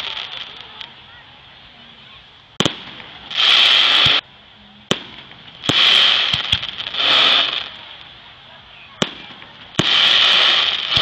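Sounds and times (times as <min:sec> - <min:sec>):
loud hissing rush: 0:00.0 - 0:11.0
small firework pops: 0:02.6 - 0:04.2, 0:04.9 - 0:08.1, 0:09.0 - 0:11.0.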